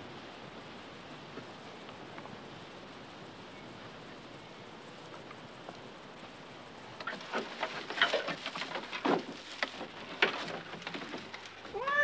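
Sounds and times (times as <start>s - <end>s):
rustling and scraping thatch: 7.0s - 12.0s
cat meowing: 11.7s - 12.0s.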